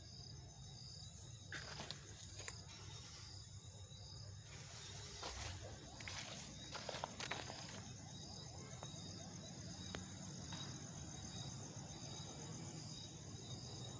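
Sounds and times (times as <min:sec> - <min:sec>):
crickets chirping: 0:00.0 - 0:13.9.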